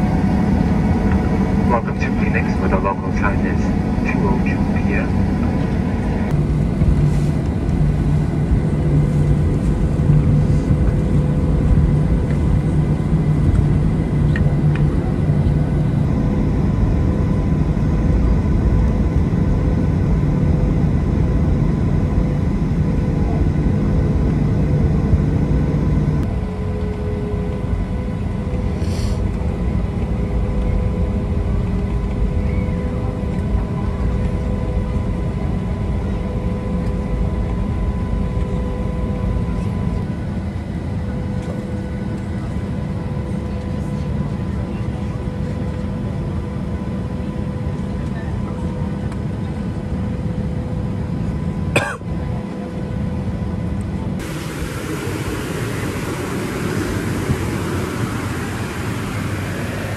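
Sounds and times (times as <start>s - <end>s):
aircraft cabin rumble: 0.0s - 59.9s
low engine hum: 0.0s - 59.9s.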